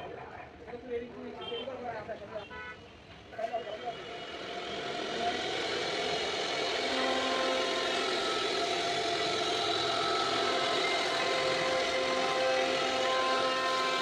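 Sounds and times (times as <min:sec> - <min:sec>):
router spindle whine: 0:03.7 - 0:14.0
cutter planing wood: 0:04.0 - 0:14.0.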